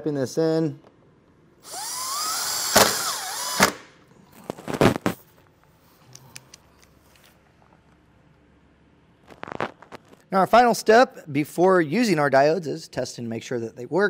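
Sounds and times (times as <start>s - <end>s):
impact driver whine: 1.6s - 4.0s.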